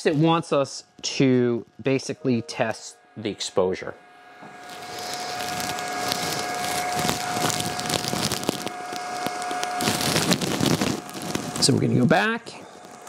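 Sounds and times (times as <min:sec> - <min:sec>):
small machine whirring: 0:03.1 - 0:13.0.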